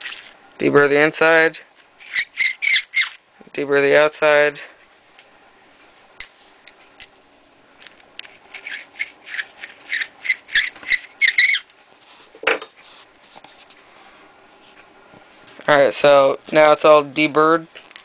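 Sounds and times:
deburring tool squeaky scrapes: 2.0 - 3.2, 8.5 - 12.3.

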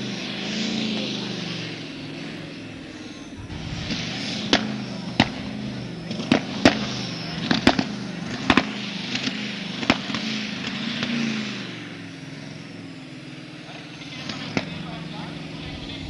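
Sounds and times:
tractor engine running: 0.0 - 16.0
loud sharp bangs: 2.7 - 11.2.

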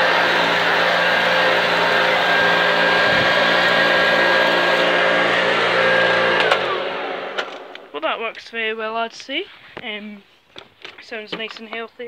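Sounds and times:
vacuum cleaner running: 0.0 - 7.9.

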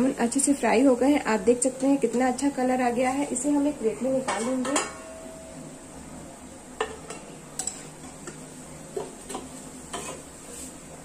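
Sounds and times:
oil bubbling and hissing: 5.9 - 11.0.

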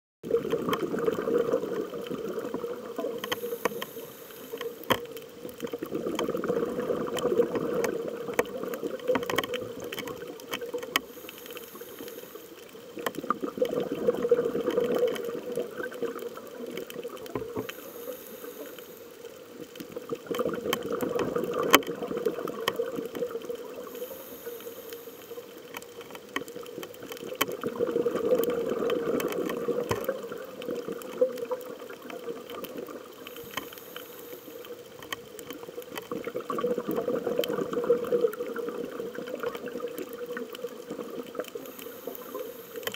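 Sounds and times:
regulator inhale hiss: 3.2 - 4.9, 11.0 - 12.8, 17.5 - 19.4, 23.8 - 25.6, 33.2 - 35.0, 41.6 - 42.9.

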